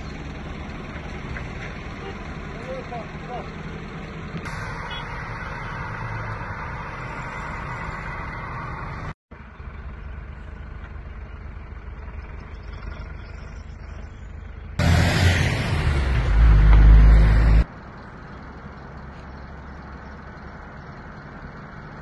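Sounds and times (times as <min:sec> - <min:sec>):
low vehicle hum: 0:00.0 - 0:22.0.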